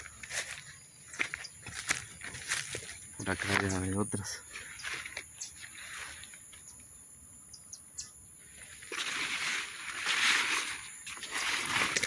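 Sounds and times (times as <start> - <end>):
faint bird chirps: 4.1 - 8.7
rustling brushing noise: 8.5 - 12.0.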